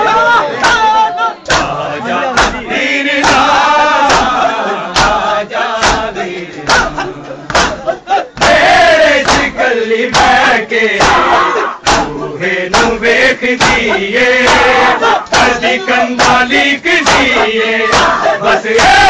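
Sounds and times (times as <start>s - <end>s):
men chanting a lament: 0.0s - 19.0s
hand slaps on bare chests: 1.5s - 1.8s, 2.4s - 4.4s, 5.0s - 5.2s, 5.8s - 15.6s, 16.2s - 19.0s.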